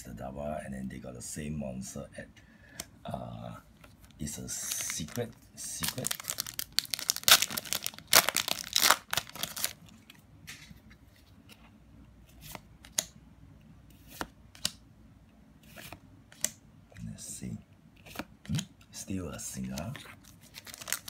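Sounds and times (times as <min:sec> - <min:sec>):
foil wrapper tearing and crinkling: 0:04.6 - 0:09.8, 0:20.2 - 0:21.0.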